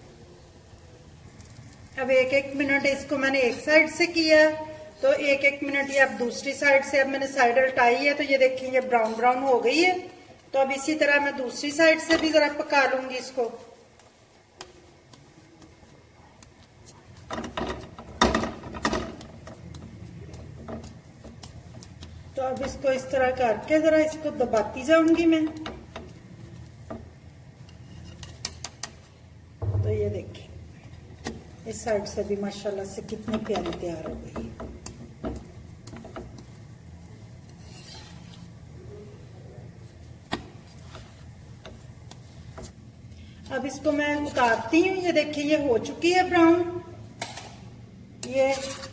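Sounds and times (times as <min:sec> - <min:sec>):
spatula clattering on griddle: 0:17.2 - 0:29.1, 0:48.2 - 0:48.9.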